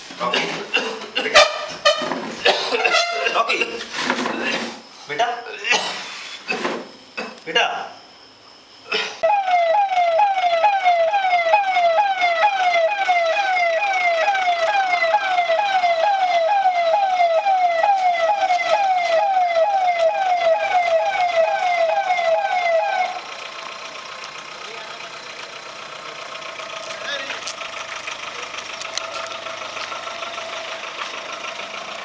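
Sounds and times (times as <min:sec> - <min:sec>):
steady background noise: 0:00.0 - 0:32.0
ambulance siren wailing: 0:09.2 - 0:27.5, 0:28.2 - 0:32.0.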